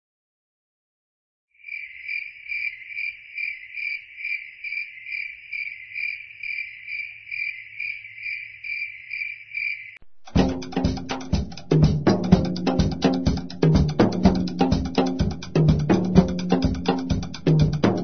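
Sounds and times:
cricket chirping: 1.6s - 10.5s.

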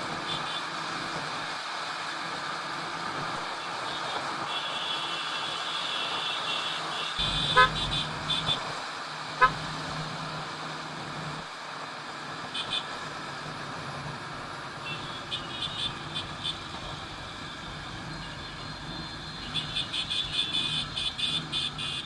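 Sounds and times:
vehicle horn beeps: 4.0s - 8.6s
motorcycle engine: 7.2s - 8.6s.

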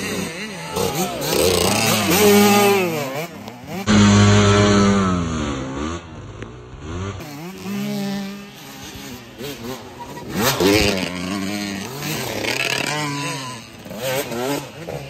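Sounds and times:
dirt bike engines revving: 0.0s - 15.0s.

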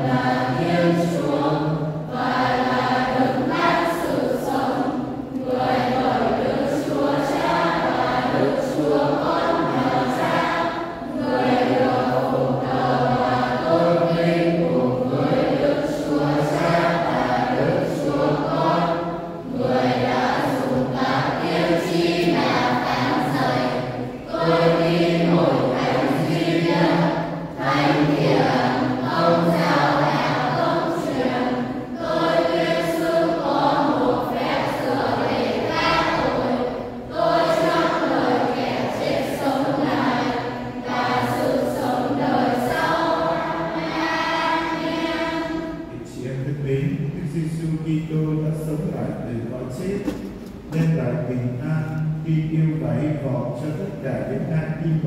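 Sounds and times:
choir singing: 0.0s - 47.6s.

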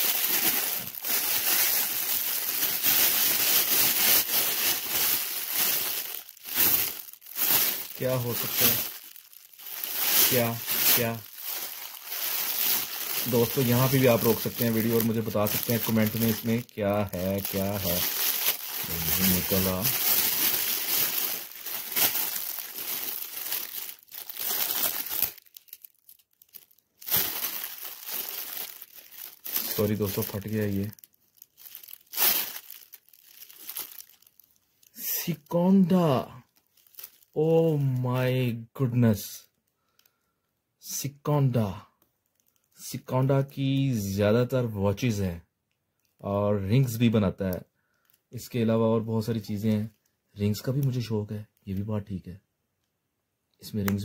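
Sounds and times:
foil gift wrap crinkling: 0.0s - 38.0s.

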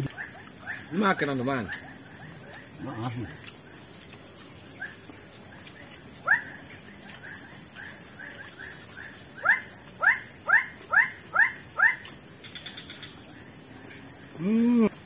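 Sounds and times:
high insect drone: 0.0s - 15.0s
animal rising calls: 14.4s - 15.0s.

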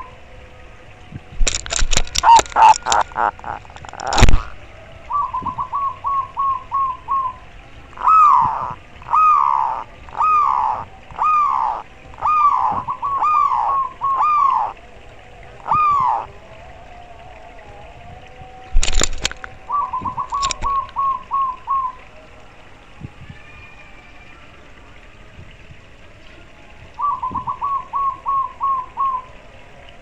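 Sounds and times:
dove cooing: 1.5s - 16.8s, 17.5s - 22.1s, 26.9s - 29.4s.

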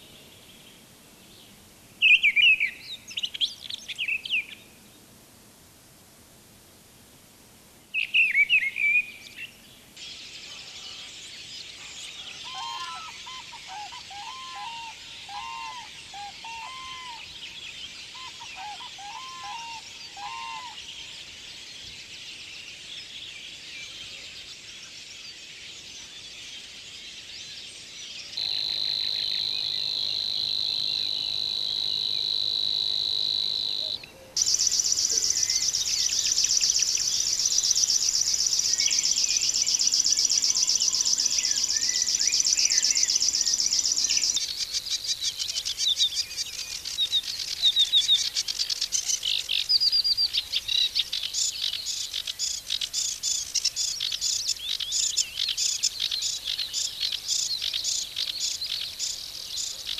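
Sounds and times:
bird reeling song: 0.0s - 4.9s, 7.9s - 59.9s
bird chattering song: 28.4s - 59.9s.

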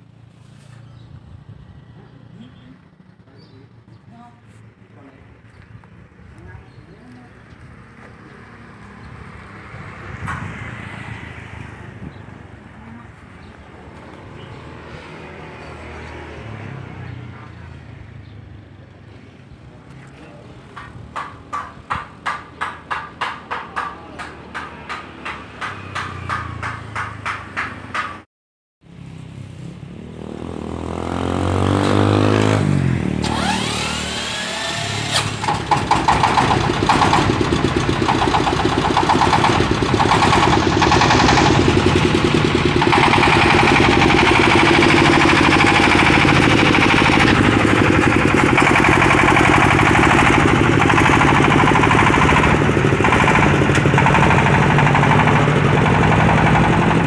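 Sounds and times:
truck engine chugging: 34.9s - 57.0s.

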